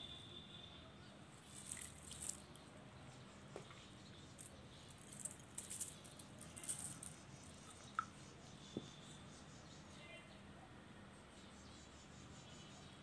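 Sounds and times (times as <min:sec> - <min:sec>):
sequins pattering onto slime: 0:01.4 - 0:02.6, 0:04.4 - 0:07.8
sequins rattling in a jar: 0:01.4 - 0:02.6, 0:04.4 - 0:08.0.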